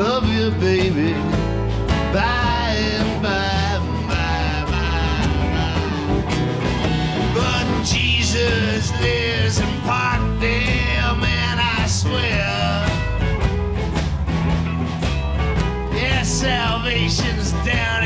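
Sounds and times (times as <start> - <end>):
drum kit: 0.0 - 18.0
live folk-rock band playing: 0.0 - 18.0.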